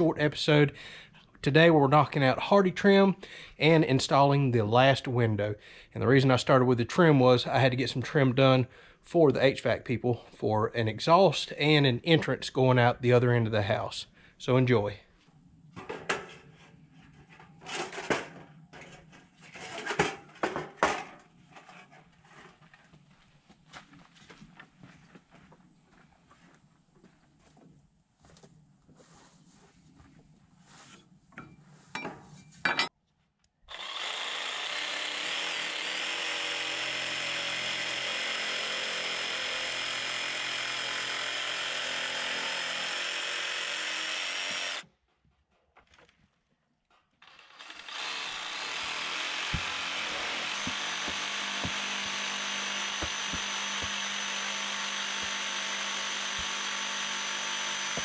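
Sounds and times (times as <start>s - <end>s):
jigsaw cutting board: 33.7s - 44.9s, 47.2s - 58.0s.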